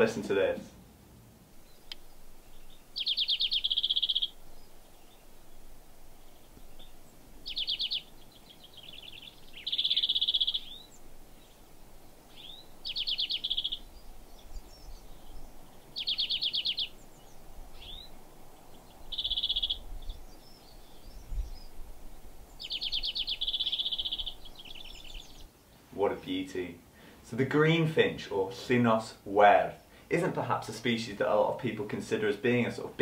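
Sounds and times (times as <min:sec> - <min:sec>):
finch trilling song: 0:01.6 - 0:26.7.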